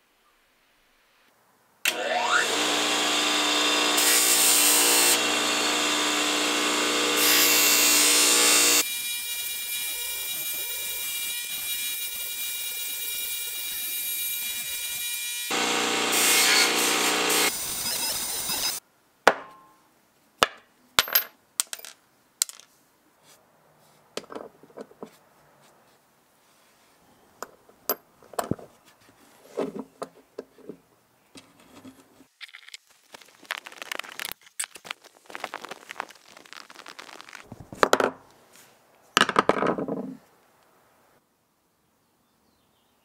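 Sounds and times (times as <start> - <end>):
rubbing and handling noises: 21.7 - 38.9
crisp clicks: 32.4 - 37.5.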